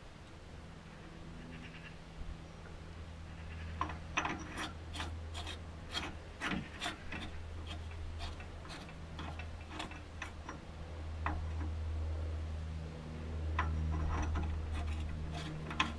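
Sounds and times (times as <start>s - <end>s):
short metal scrapes: 3.4s - 10.7s, 13.6s - 15.9s.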